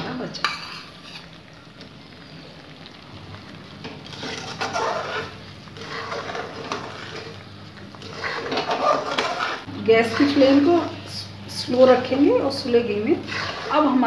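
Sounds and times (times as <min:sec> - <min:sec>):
faint sizzle: 0:00.0 - 0:14.0
metal spatula scraping a pan: 0:00.4 - 0:01.4, 0:03.8 - 0:11.2, 0:11.8 - 0:14.0.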